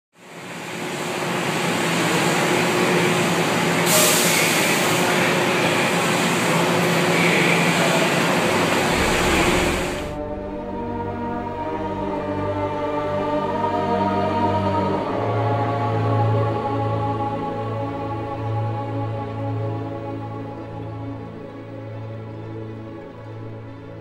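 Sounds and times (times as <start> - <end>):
subway train rumbling: 0.2 - 24.0
music: 8.8 - 24.0.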